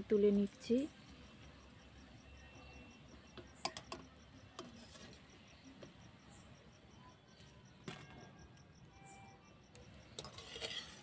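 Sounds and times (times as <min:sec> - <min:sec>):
insects chirping: 0:00.0 - 0:11.0
wire skimmer clinking on iron pan: 0:10.2 - 0:11.0.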